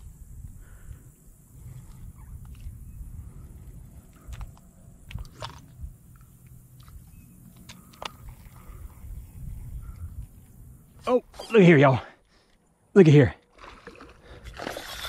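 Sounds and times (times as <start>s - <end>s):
steady low rumble: 0.0s - 11.4s.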